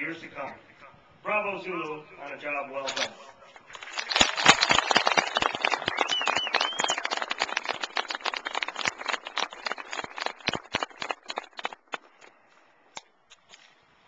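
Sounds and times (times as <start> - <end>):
crowd applauding: 3.7 - 12.3
short whistle: 5.9 - 7.1.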